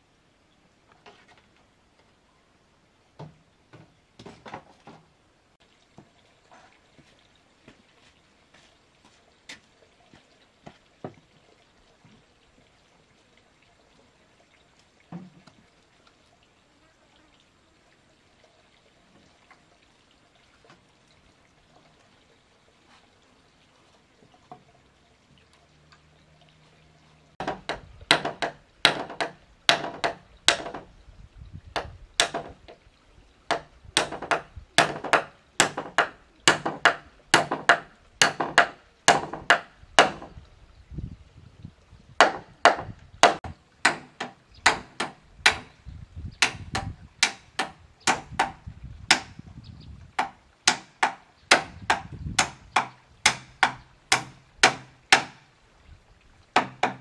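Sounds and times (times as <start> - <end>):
hand tool striking wood: 27.4 - 30.9, 31.8 - 32.6, 33.5 - 40.4, 42.2 - 45.8, 46.4 - 49.4, 50.2 - 55.4, 56.6 - 57.0.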